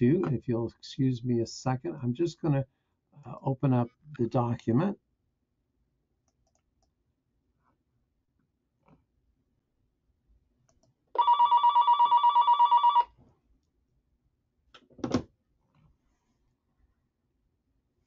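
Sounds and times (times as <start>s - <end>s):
electronic telephone ringing: 11.2s - 13.1s.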